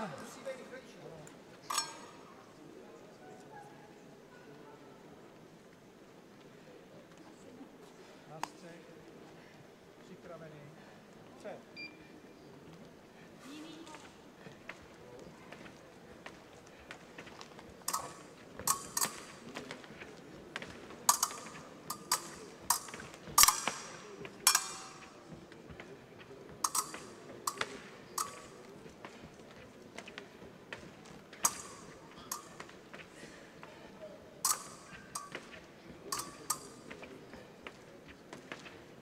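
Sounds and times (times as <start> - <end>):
fencing blades clashing: 1.3 - 2.4, 16.7 - 25.9, 26.5 - 38.8.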